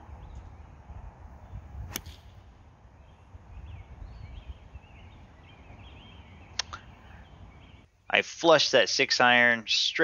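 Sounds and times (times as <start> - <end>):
birds chirping faintly: 0.0 - 10.0
golf club striking ball: 1.9 - 2.4.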